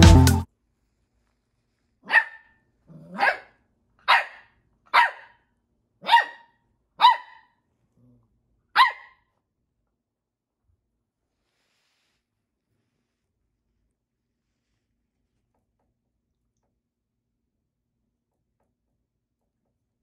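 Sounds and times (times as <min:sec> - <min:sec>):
puppy barking: 0:02.0 - 0:05.4, 0:06.0 - 0:07.6, 0:08.8 - 0:09.3.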